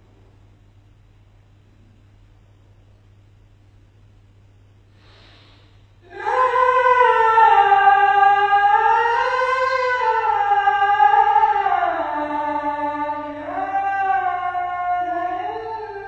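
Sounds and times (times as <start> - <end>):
solo voice singing call to prayer: 6.0 - 16.0.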